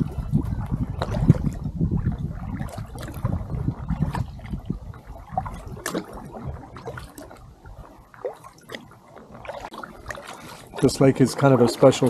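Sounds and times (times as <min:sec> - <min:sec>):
wind rumble on microphone: 0:00.0 - 0:08.0
paddle dipping in water: 0:00.0 - 0:12.0
water dripping off paddle: 0:00.6 - 0:12.0.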